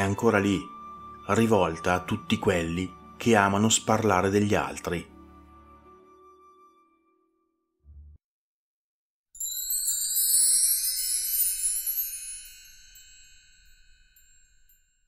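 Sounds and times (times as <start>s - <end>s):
tinkling bell-like chimes: 9.4s - 15.0s.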